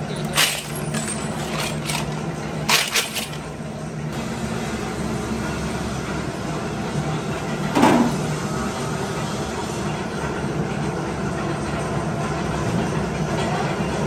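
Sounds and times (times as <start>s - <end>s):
loose washers jingling: 0.0s - 3.5s
steady mechanical rumble: 0.0s - 14.0s.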